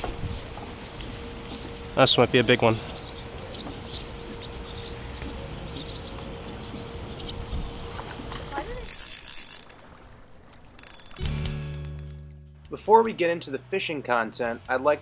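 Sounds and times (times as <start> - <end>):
fish splashing: 8.1 - 12.2
fishing reel whirring: 8.4 - 12.2.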